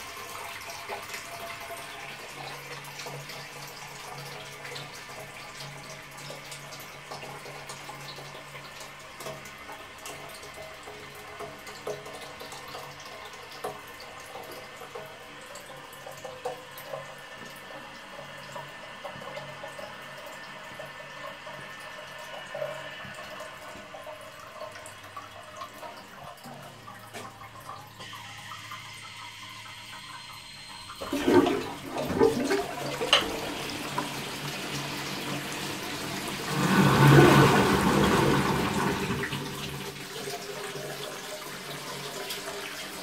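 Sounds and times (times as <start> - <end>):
toilet cistern flushing: 0.0 - 43.0.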